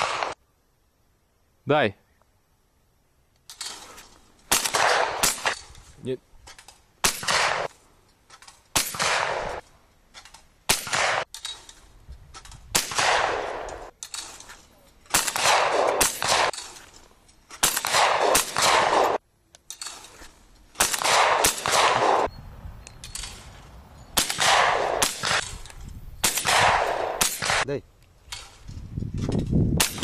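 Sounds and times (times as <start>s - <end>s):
shotgun shots echoing: 0.0s - 0.4s, 4.5s - 5.7s, 7.0s - 7.7s, 8.7s - 9.6s, 10.7s - 11.3s, 12.7s - 14.4s, 15.1s - 16.8s, 17.6s - 19.2s, 20.8s - 22.3s, 24.2s - 25.6s, 26.2s - 27.8s, 29.8s - 30.0s.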